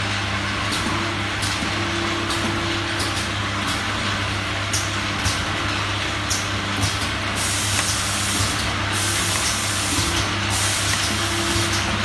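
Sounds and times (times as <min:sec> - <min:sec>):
machine motor hum: 0:00.0 - 0:12.0
air hissing: 0:07.4 - 0:11.7.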